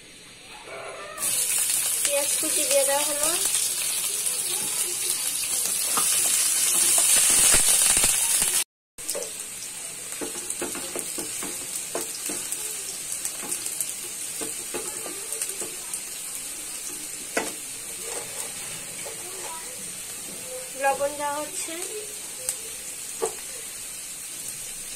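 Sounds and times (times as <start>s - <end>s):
onions sizzling in oil: 0.3s - 24.9s
wooden spatula scraping a pan: 17.3s - 20.4s.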